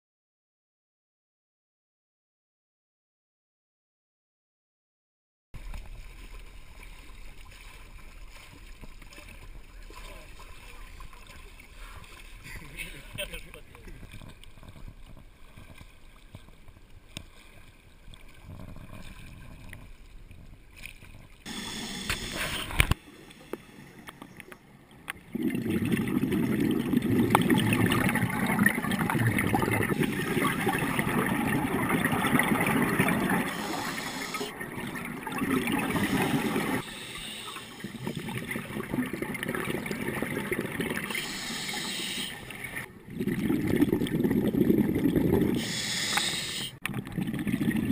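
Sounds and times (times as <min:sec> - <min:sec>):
water at surface: 0:05.6 - 0:47.9
muffled underwater bubbling: 0:18.1 - 0:20.6, 0:21.4 - 0:47.9.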